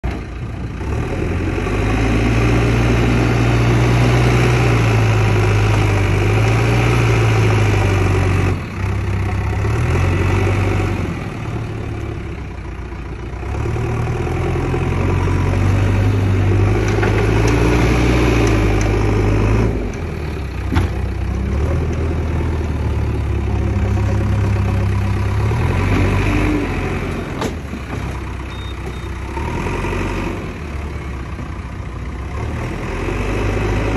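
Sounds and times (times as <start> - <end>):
backhoe diesel engine working: 0.0 - 33.9.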